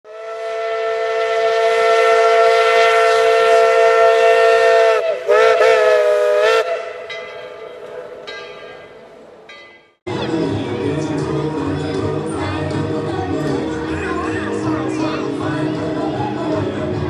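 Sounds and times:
steam locomotive whistle: 0.1s - 7.2s.

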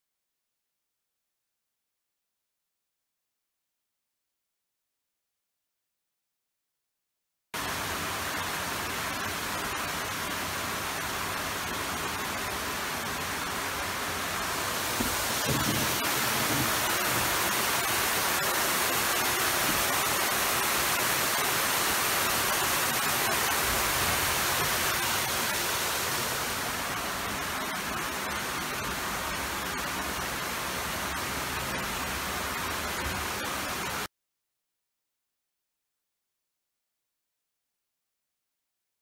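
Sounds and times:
water rushing through lock gate: 7.6s - 34.1s.

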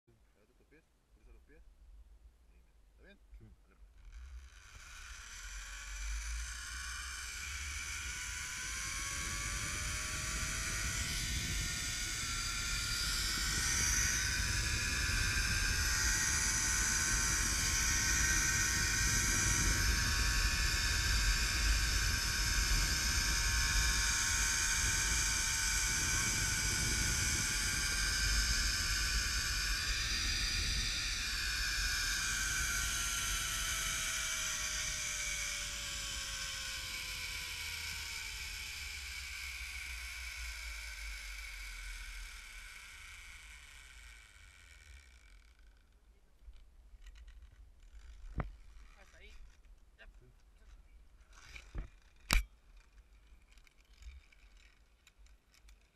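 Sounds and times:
pulleys whirring on steel cable: 3.9s - 49.8s, 51.2s - 55.9s
wind rushing over microphone: 7.4s - 38.5s.

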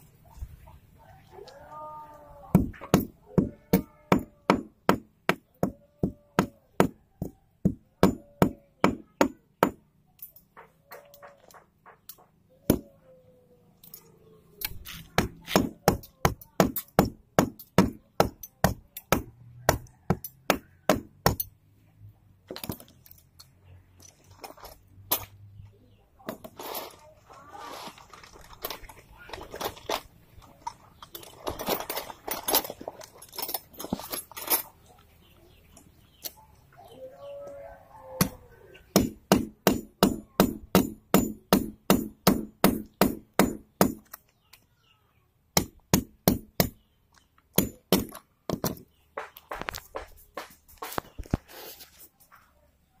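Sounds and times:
hammer striking: 38.9s - 44.1s.

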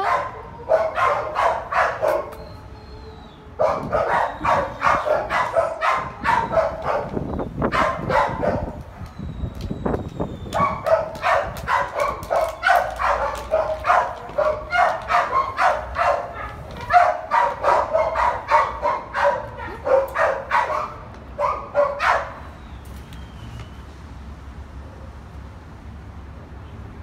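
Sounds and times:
dog barking: 0.0s - 2.4s, 3.6s - 8.8s, 10.6s - 22.4s.

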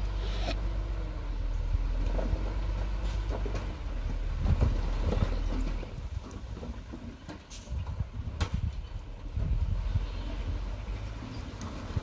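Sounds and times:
bulldozer diesel engine droning: 0.0s - 6.0s.

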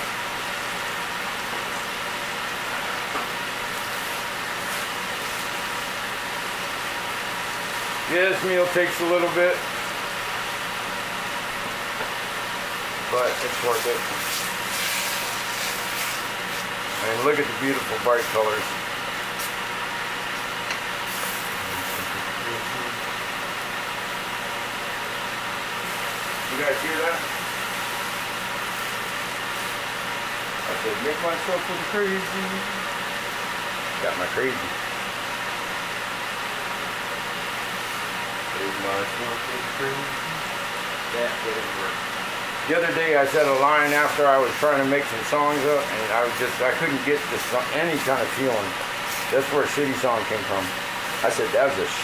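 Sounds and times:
food sizzling in a pot: 14.0s - 17.1s.

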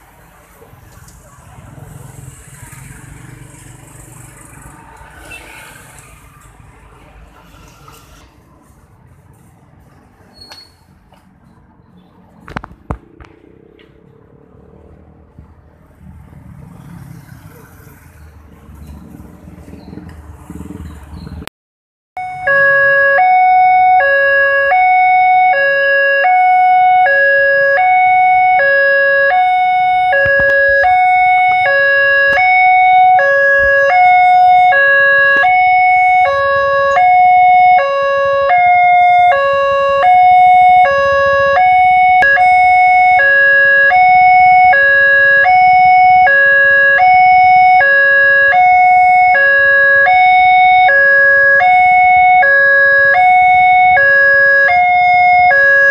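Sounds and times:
level crossing two-tone alarm: 22.2s - 55.9s.

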